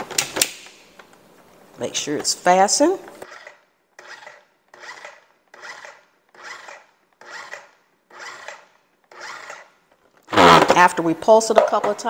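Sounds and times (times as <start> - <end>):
food processor bursts: 3.2 - 9.7, 10.3 - 10.8.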